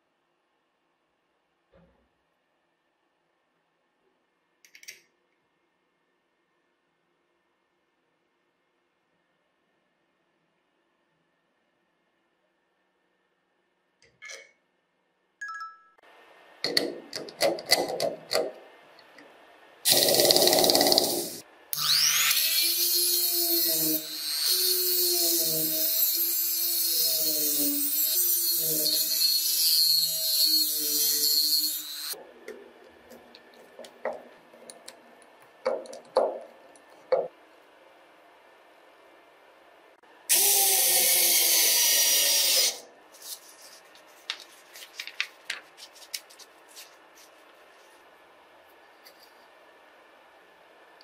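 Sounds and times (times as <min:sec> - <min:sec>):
metal knocking on wooden board: 0:35.7 - 0:36.5, 0:37.1 - 0:37.3.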